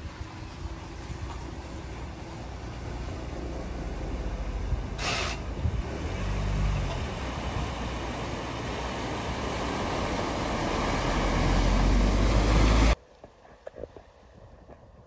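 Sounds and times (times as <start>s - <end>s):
vehicle engine driving past: 0.8s - 13.0s.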